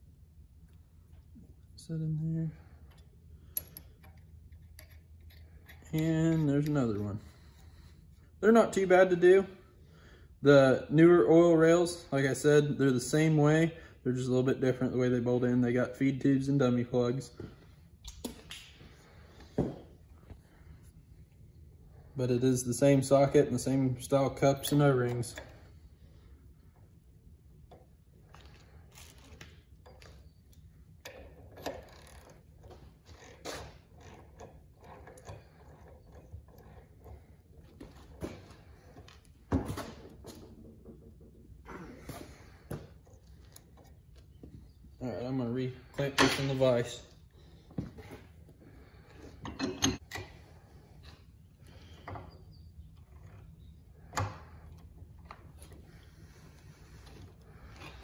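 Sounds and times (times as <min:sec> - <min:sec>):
metal clanks and clicks: 0:49.3 - 0:50.4.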